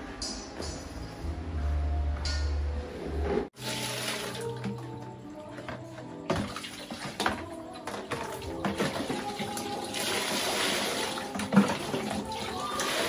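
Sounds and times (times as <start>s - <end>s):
soft background music: 0.0s - 13.0s
water pouring into a basin: 3.6s - 4.6s, 8.8s - 13.0s
water sloshing in a bucket: 3.6s - 13.0s.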